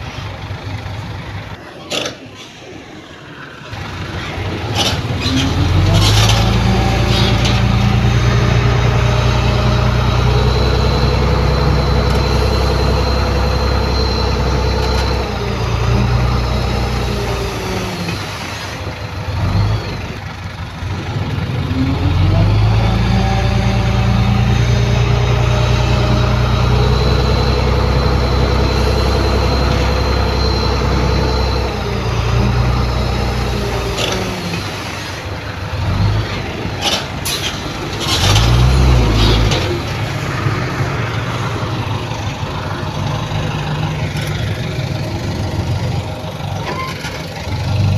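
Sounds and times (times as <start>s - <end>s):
high whine: 0.0s - 20.2s, 21.9s - 35.8s
diesel engine under load: 0.0s - 47.9s.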